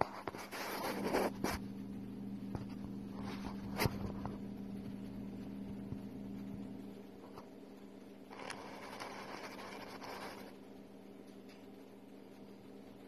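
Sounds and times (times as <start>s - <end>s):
scratchy rustles: 0.0s - 1.6s, 2.6s - 4.5s, 8.3s - 10.6s
low electrical hum: 0.0s - 13.0s.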